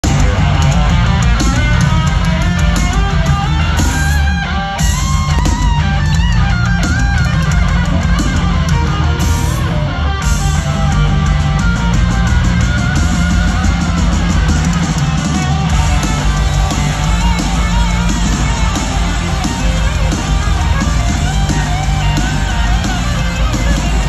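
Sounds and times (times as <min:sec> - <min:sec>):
drum beat: 0:00.0 - 0:24.0
electric guitars: 0:00.0 - 0:24.0.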